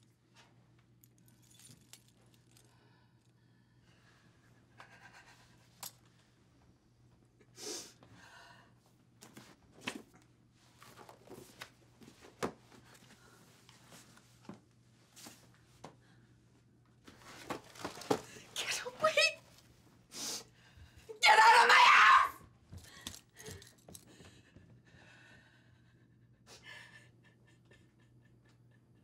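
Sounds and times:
papers rustling: 0:17.1 - 0:18.5.

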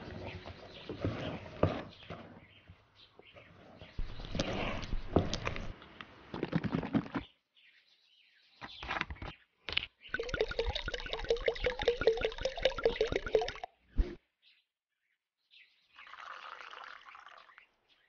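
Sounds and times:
spatula scraping in plastic bowl: 0:00.2 - 0:02.5
cream glugging into a jug: 0:10.1 - 0:13.7, 0:16.0 - 0:17.6.

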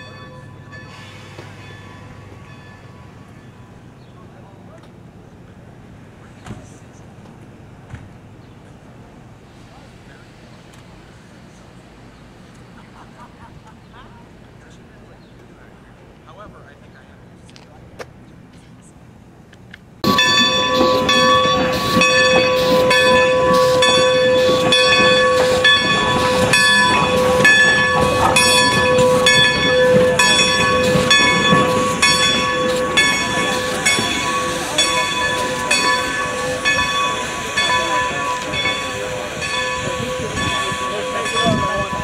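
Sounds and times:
steam locomotive bell ringing: 0:00.0 - 0:04.7, 0:20.0 - 0:42.0
steam hissing: 0:00.8 - 0:02.4, 0:20.1 - 0:42.0.

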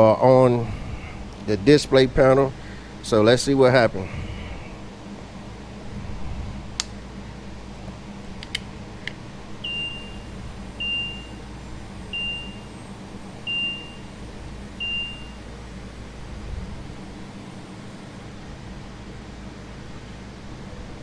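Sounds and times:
low steady hum: 0:00.0 - 0:21.0
dashboard warning chime beeping: 0:09.6 - 0:15.6.

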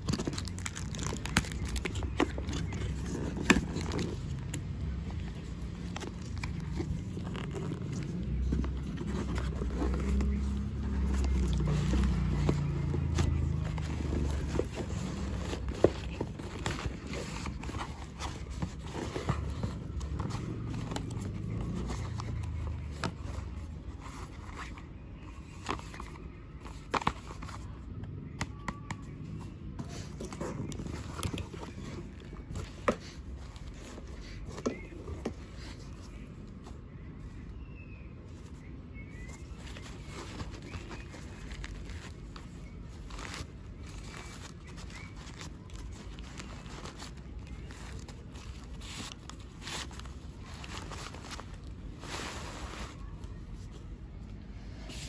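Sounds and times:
paper rustling: 0:00.0 - 0:28.0, 0:29.4 - 0:37.5, 0:38.3 - 0:55.0.

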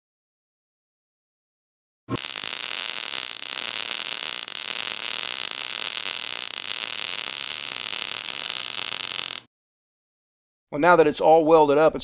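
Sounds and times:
welding arc crackling hiss: 0:02.1 - 0:09.5
welding arc striking thump: 0:02.1 - 0:09.5.

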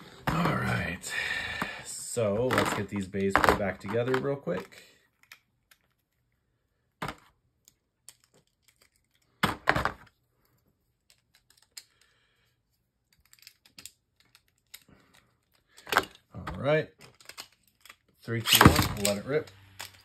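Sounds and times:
plastic parts clicking together: 0:02.4 - 0:06.4, 0:07.0 - 0:12.2, 0:13.0 - 0:20.0.

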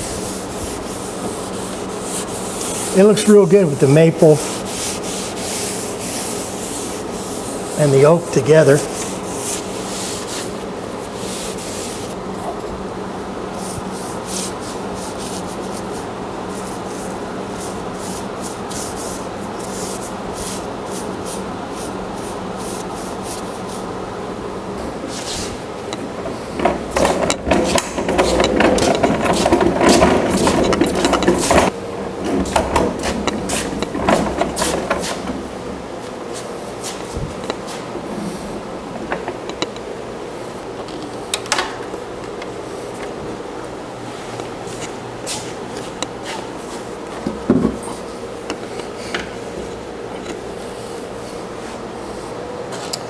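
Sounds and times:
cloth rag rubbing wood: 0:00.0 - 0:12.2, 0:13.6 - 0:23.9
caster wheels rolling on concrete: 0:26.2 - 0:35.2.

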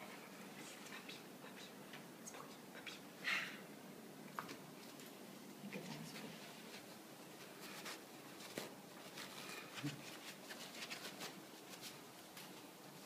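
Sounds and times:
paper rustling: 0:06.8 - 0:12.7.

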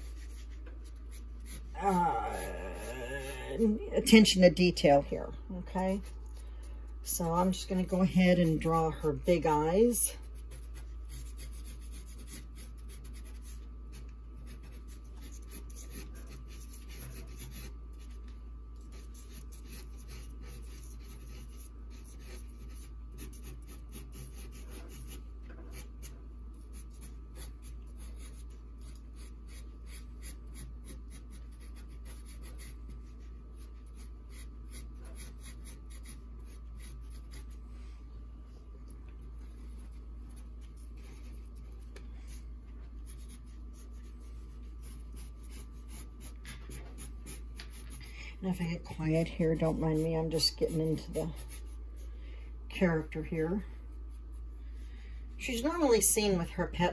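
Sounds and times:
marker scratching on paper: 0:00.0 - 0:01.7, 0:07.2 - 0:37.6, 0:43.0 - 0:52.1
steady low hum: 0:00.0 - 0:56.9.

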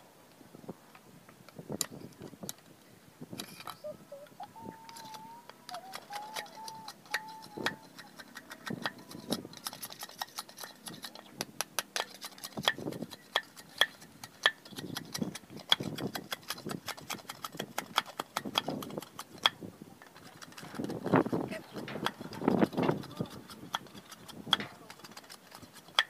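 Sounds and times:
machete chopping wood: 0:15.7 - 0:19.6.

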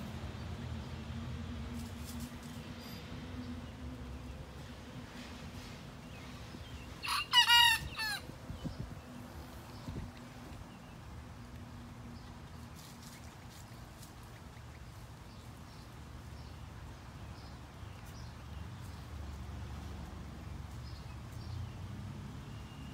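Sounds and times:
young rooster crowing: 0:07.0 - 0:08.3.

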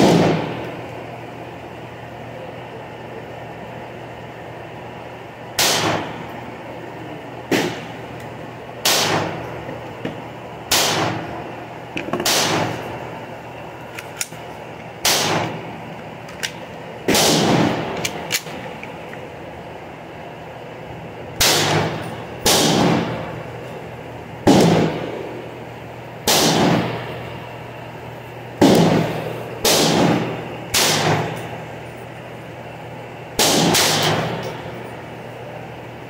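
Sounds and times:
loud gunshots with echo: 0:00.0 - 0:00.6, 0:05.6 - 0:06.2, 0:07.5 - 0:08.0, 0:08.8 - 0:09.4, 0:10.7 - 0:11.4, 0:12.2 - 0:12.8, 0:15.0 - 0:15.6, 0:17.1 - 0:18.0, 0:21.4 - 0:23.2, 0:26.2 - 0:27.0, 0:28.6 - 0:31.3, 0:33.4 - 0:34.4
faint sharp gunshot cracks: 0:05.6 - 0:06.1, 0:07.5 - 0:07.9, 0:10.7 - 0:11.2, 0:29.6 - 0:31.3.

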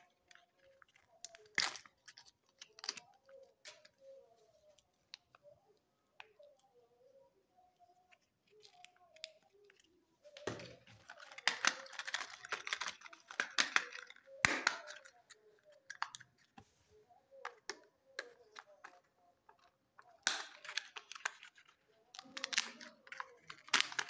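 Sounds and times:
plastic and foil clicks: 0:00.0 - 0:04.1, 0:08.4 - 0:16.6, 0:17.5 - 0:24.0
plastic wrappers crackling: 0:08.4 - 0:16.4, 0:20.2 - 0:24.0.

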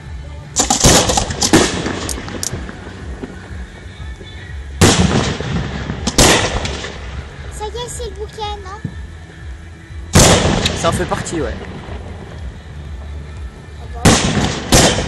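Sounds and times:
firework shells bursting: 0:00.6 - 0:03.5.

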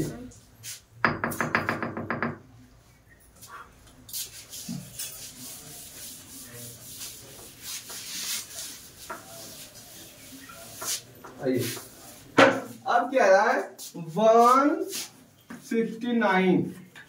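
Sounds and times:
duster swishing on chalkboard: 0:00.6 - 0:00.9, 0:03.4 - 0:12.8, 0:13.6 - 0:15.2.

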